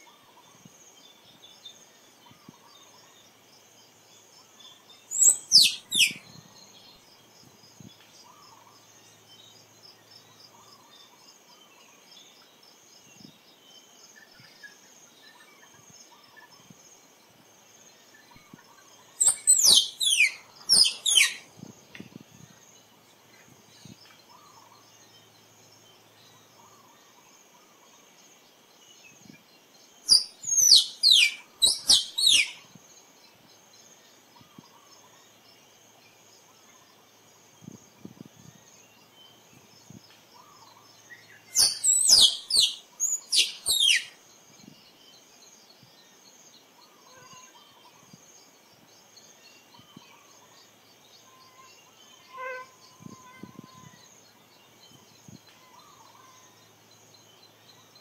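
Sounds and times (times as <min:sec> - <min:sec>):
faint insect drone: 0:00.0 - 0:58.0
squirrel squeaking: 0:05.2 - 0:06.2, 0:19.2 - 0:21.4, 0:30.1 - 0:32.6, 0:41.6 - 0:44.1.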